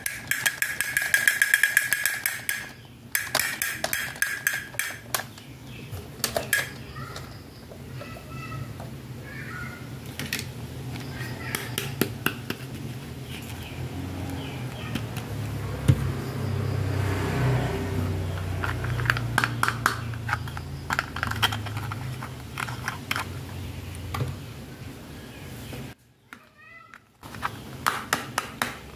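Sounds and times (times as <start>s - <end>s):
plastic toys clicking and tapping: 0.0s - 5.5s, 6.2s - 9.0s, 10.0s - 12.7s, 18.3s - 23.4s.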